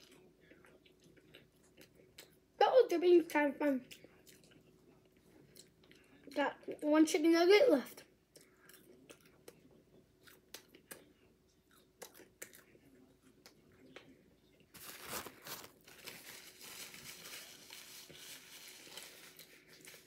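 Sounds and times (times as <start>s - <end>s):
paper packaging rustling: 14.8s - 20.0s.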